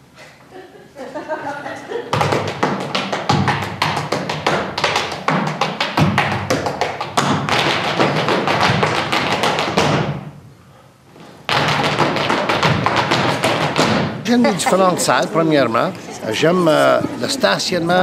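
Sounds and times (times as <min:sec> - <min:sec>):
hand clapping: 0:02.1 - 0:10.0
dancers stamping feet: 0:02.1 - 0:10.3, 0:11.1 - 0:16.2.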